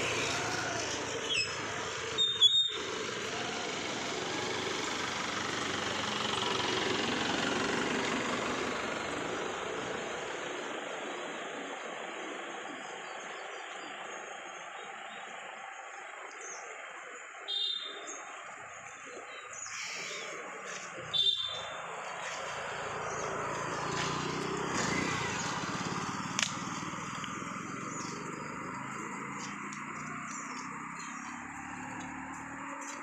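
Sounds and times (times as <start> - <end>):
motorcycle engine passing: 0.0 - 11.6, 20.1 - 33.0
outdoor noise hiss: 0.0 - 32.6.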